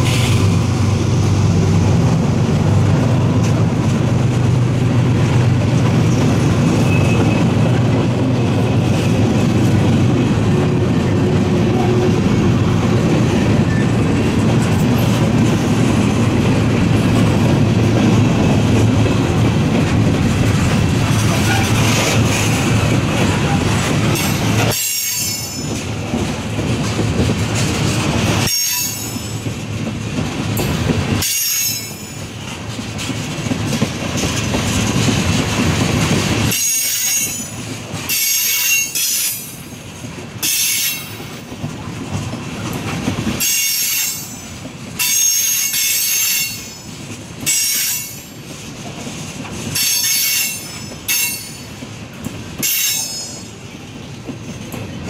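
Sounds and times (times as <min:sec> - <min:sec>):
train wheels clattering on rails: 0:00.0 - 0:55.0
train wheels squealing: 0:06.6 - 0:07.6, 0:13.6 - 0:14.0, 0:24.2 - 0:25.9, 0:28.4 - 0:29.5, 0:31.2 - 0:32.2, 0:36.5 - 0:39.6, 0:40.4 - 0:41.2, 0:43.4 - 0:46.9, 0:47.5 - 0:48.3, 0:49.8 - 0:51.7, 0:52.6 - 0:53.6.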